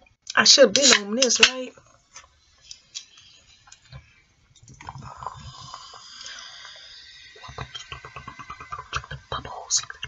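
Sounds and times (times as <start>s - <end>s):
soda pouring with fizzing hiss: 2.4s - 10.0s
slurping: 2.7s - 10.0s.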